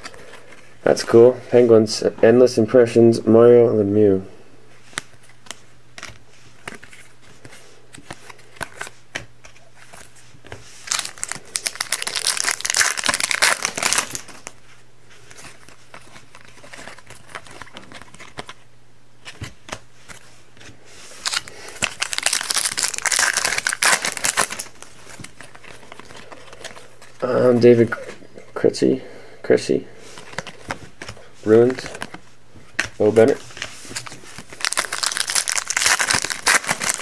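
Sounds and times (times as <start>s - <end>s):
card pack wrappers tearing and crinkling: 10.8s - 14.6s, 15.3s - 18.6s, 21.1s - 27.4s, 32.8s - 37.0s.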